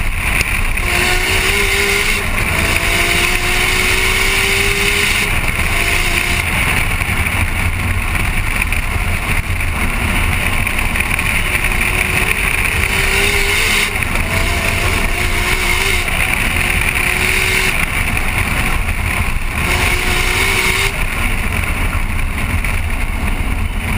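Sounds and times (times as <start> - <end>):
car engine revving through gears: 0.0 - 7.0, 10.0 - 21.3.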